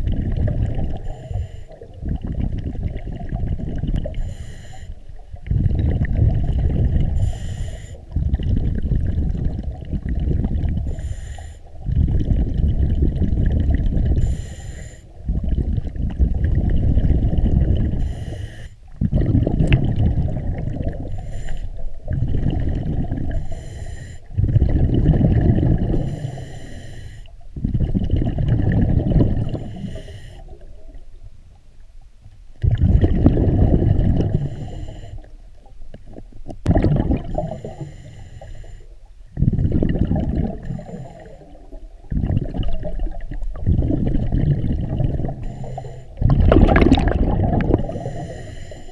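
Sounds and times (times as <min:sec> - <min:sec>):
exhaled bubbles gurgling: 0:00.0 - 0:31.4, 0:32.6 - 0:48.9
regulator inhale hiss: 0:01.0 - 0:01.9, 0:04.1 - 0:05.2, 0:07.1 - 0:08.2, 0:10.8 - 0:11.8, 0:14.2 - 0:15.2, 0:17.9 - 0:18.9, 0:21.0 - 0:22.1, 0:23.3 - 0:24.4, 0:25.9 - 0:27.4, 0:29.5 - 0:30.6, 0:34.3 - 0:35.4, 0:37.4 - 0:39.2, 0:40.7 - 0:41.8, 0:45.3 - 0:46.2, 0:47.8 - 0:48.9.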